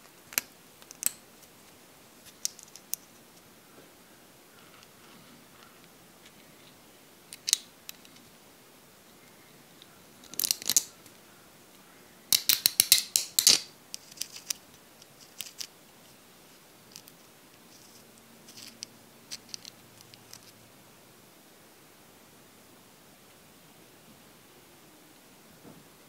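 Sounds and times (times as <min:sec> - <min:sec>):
small metal parts clicking: 0:10.2 - 0:10.9, 0:12.3 - 0:15.7, 0:18.5 - 0:20.5.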